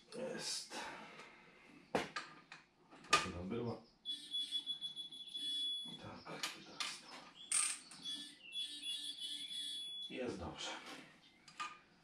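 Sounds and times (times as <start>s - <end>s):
torque wrench beeping: 4.1s - 6.0s, 8.0s - 10.2s.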